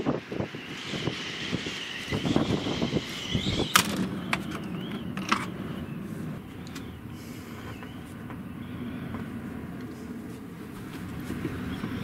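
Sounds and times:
storm wind gusting: 0:00.0 - 0:07.3
wind whistling: 0:00.0 - 0:12.0.

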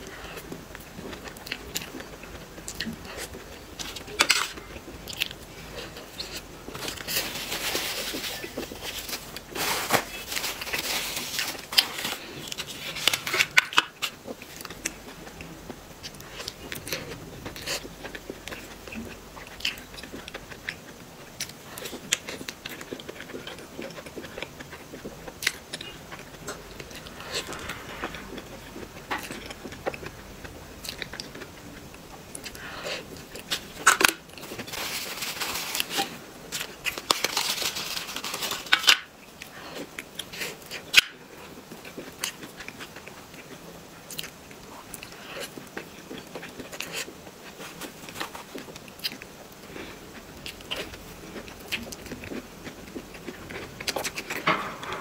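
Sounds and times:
chewing sticky food: 0:11.4 - 0:54.5.

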